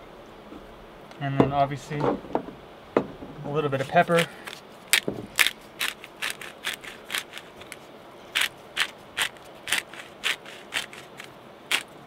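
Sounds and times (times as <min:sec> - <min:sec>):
pepper grinder crunching peppercorns: 0:04.9 - 0:12.0.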